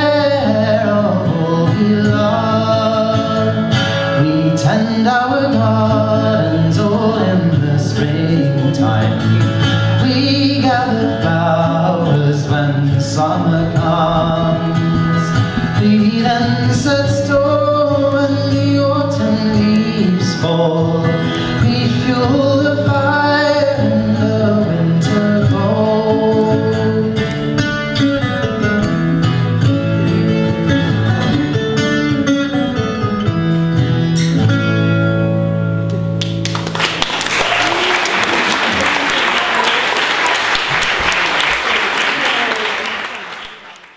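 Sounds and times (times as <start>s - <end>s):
man singing: 0.0s - 32.0s
guitar accompaniment: 0.0s - 43.9s
audience applause: 36.2s - 43.9s.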